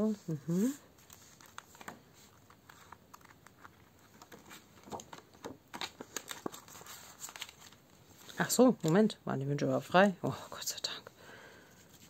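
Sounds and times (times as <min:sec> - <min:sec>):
plastic sleeves and paper rustling: 0:00.0 - 0:09.2.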